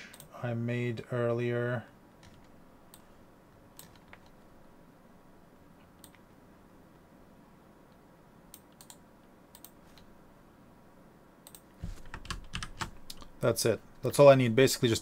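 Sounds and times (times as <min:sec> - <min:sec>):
room hiss: 0:00.0 - 0:15.0
computer keyboard keystrokes: 0:03.8 - 0:04.3, 0:11.5 - 0:13.3.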